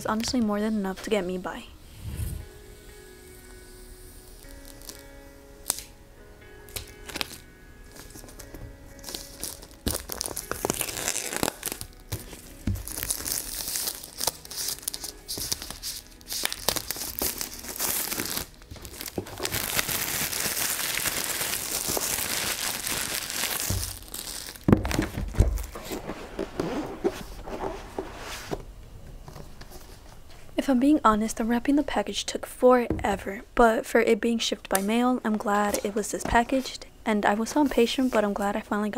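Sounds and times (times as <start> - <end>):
plastic wrap crinkling and tearing: 4.3 - 5.9, 6.7 - 26.8.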